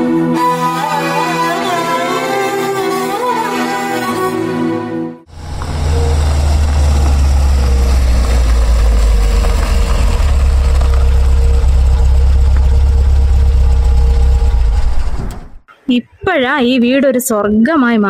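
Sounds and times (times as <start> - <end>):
car engine idling over speakers: 5.3 - 15.2.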